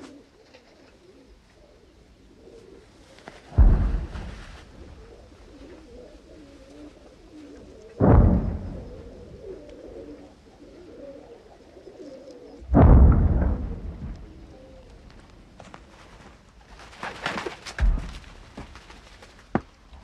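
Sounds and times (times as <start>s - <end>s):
doves cooing faintly: 0.0s - 20.0s
heavy explosion booms: 3.6s - 5.0s, 8.0s - 9.5s, 12.6s - 15.2s.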